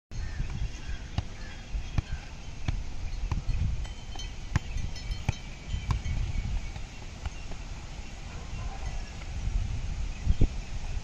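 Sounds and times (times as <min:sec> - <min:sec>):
football dull thuds: 0:00.4 - 0:07.7.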